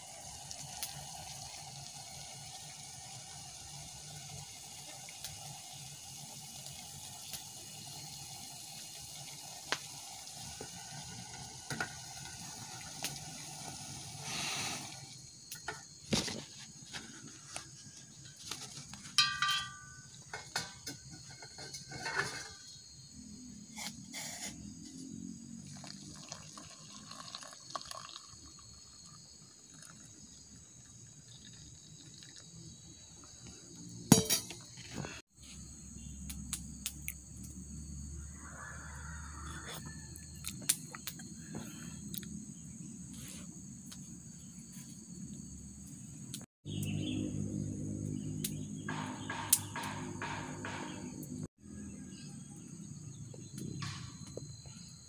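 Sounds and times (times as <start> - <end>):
insects: 0.0 - 55.0
water pouring into plastic cup: 25.7 - 30.1, 31.1 - 32.5
sharp knock: 48.9 - 51.2.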